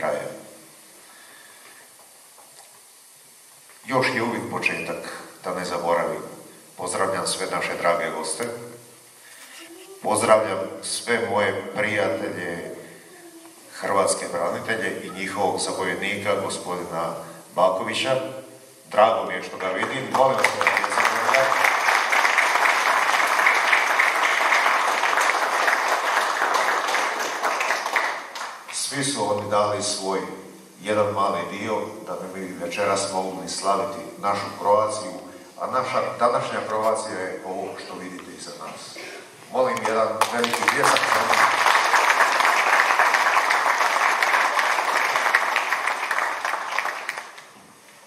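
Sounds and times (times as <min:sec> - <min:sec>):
audience applause: 0:19.6 - 0:28.8, 0:39.8 - 0:47.5.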